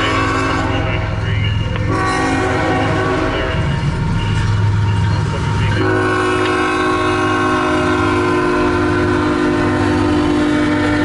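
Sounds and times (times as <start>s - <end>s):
locomotive air horn chord: 0.0s - 1.2s, 1.8s - 3.7s, 5.8s - 11.0s.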